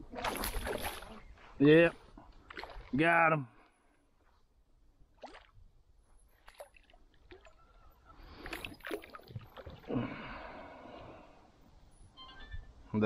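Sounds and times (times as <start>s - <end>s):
water sloshing: 0.0s - 1.2s, 2.3s - 3.1s, 5.1s - 5.6s, 6.3s - 10.2s.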